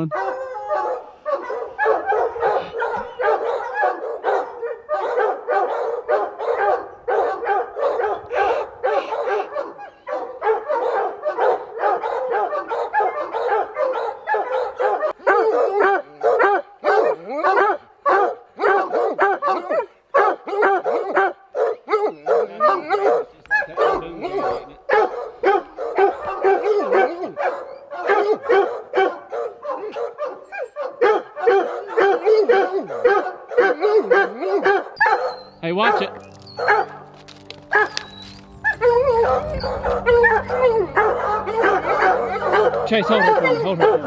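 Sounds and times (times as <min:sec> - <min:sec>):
hounds baying: 0:00.0 - 0:44.0.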